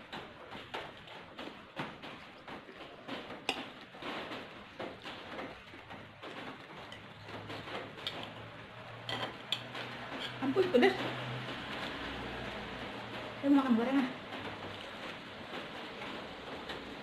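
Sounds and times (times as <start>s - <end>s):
utensils clicking against plate: 6.9s - 11.1s.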